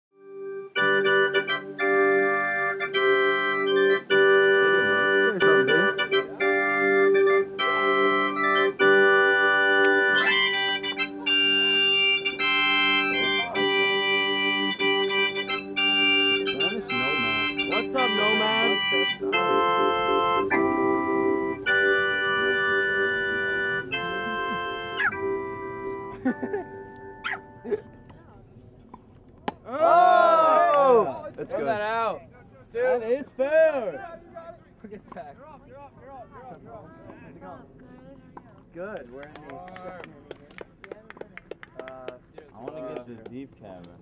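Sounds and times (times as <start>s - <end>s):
organ chords over held note: 0.2s - 28.2s.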